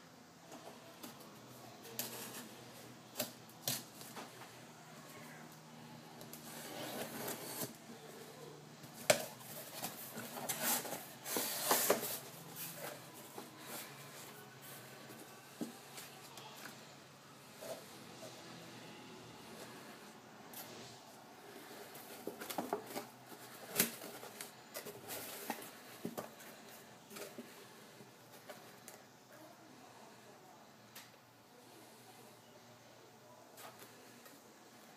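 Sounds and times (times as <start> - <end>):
cardboard box scraping and rustling: 6.4 - 7.8.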